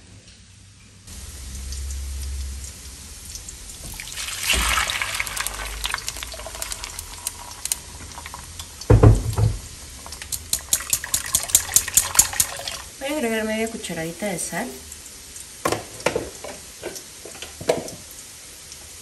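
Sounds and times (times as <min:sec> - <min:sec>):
sauce splashing and trickling: 0:01.6 - 0:12.9
loud knock: 0:08.9 - 0:09.7.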